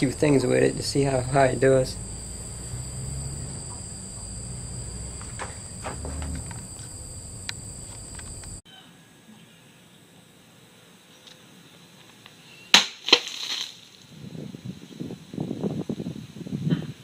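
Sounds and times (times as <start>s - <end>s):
crickets trilling: 0.0s - 8.6s
quiet outdoor background: 0.0s - 15.5s.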